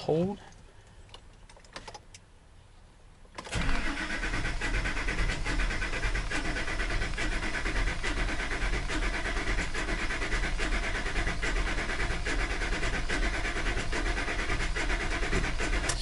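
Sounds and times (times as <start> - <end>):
engine cranking on starter: 3.4 - 16.0.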